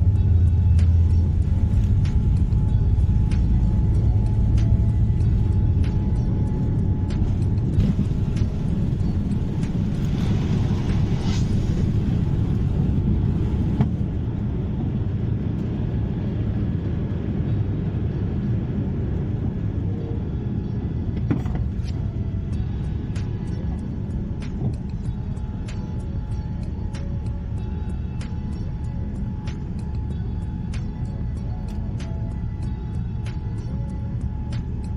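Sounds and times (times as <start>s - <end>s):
rushing air: 0.0s - 19.9s
jet engines rumbling: 0.0s - 31.2s.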